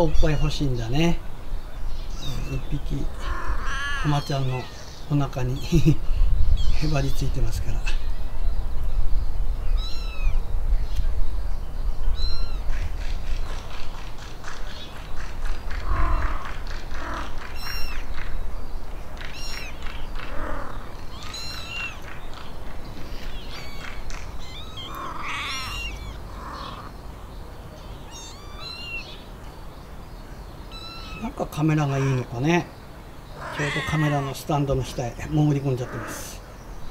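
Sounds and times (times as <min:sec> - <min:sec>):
kittens mewing: 0:02.2 - 0:04.7, 0:19.3 - 0:22.1, 0:23.4 - 0:26.9, 0:28.1 - 0:29.0, 0:33.4 - 0:34.5
kitten mewing: 0:21.1 - 0:22.0, 0:24.4 - 0:26.9.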